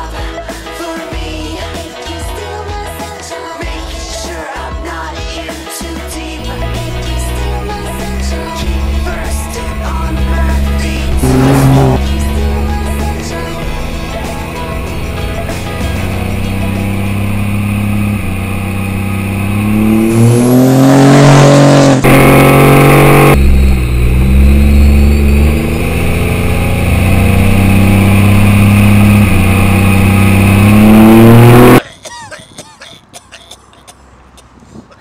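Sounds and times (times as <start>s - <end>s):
diesel truck engine revving: 6.2s - 31.8s.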